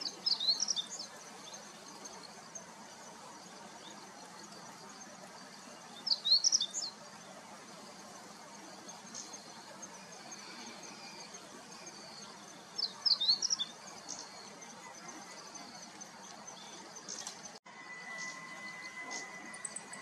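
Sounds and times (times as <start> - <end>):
steady outdoor hiss: 0.0 - 20.0
bird singing high clear notes: 17.7 - 20.0.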